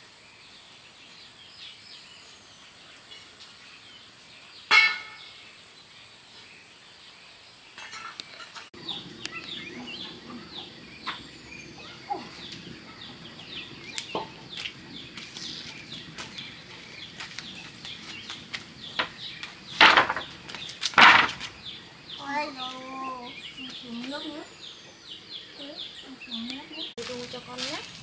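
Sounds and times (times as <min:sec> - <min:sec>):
chicks cheeping: 0:08.4 - 0:19.8.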